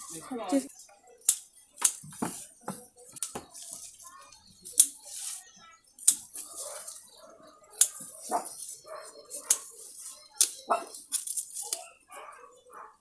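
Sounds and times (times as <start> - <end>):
scissors snipping stems: 1.2 - 2.0, 7.8 - 9.7.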